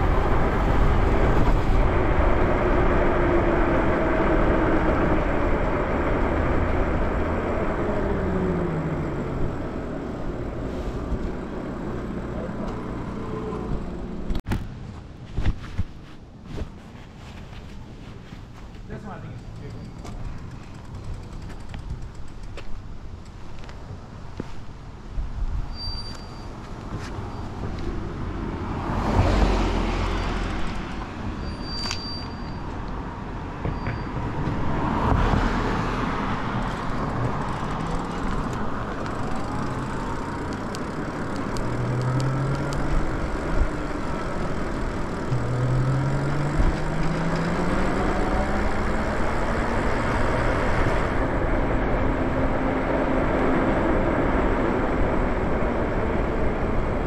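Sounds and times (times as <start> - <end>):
wind rushing past microphone: 0.0 - 9.7
rising whine: 0.0 - 14.4, 28.2 - 57.0
traffic passing: 0.0 - 57.0
tyre on road noise: 0.0 - 57.0.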